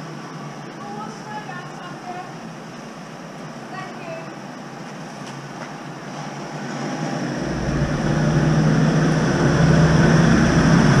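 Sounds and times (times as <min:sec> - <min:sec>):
car engine hum: 0:05.8 - 0:11.0.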